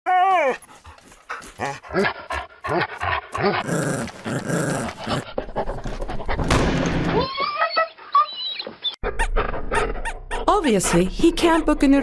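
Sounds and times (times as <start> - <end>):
dog growling pant: 0.5 - 6.5.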